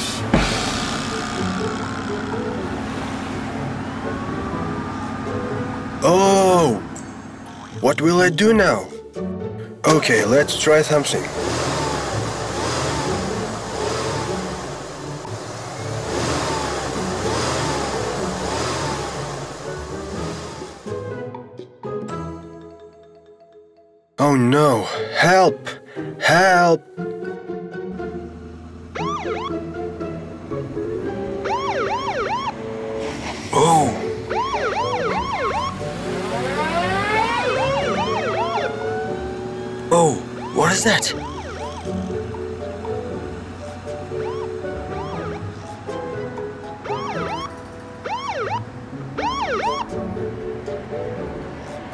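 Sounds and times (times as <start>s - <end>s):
vehicle engine revving: 0.0s - 6.2s, 10.5s - 21.1s, 27.8s - 51.9s
slower siren wail: 3.6s - 6.9s, 28.9s - 29.9s, 31.1s - 32.7s, 33.6s - 41.9s, 44.1s - 45.5s, 46.8s - 50.2s
police siren yelping: 4.0s - 6.9s, 28.9s - 30.0s, 31.0s - 32.7s, 33.6s - 42.2s, 43.8s - 50.2s.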